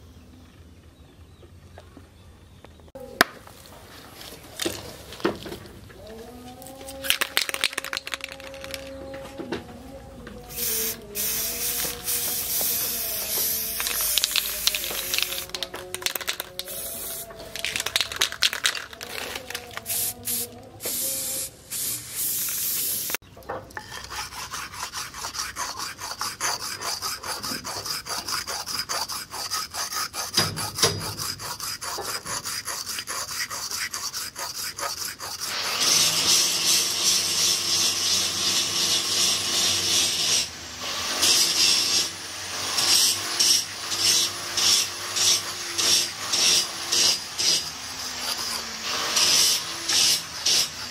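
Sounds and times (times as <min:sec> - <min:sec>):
aerosol spray hiss: 0:10.5 - 0:15.6, 0:16.6 - 0:17.4, 0:19.9 - 0:23.2
steel blade rasping on stone: 0:23.8 - 0:36.4.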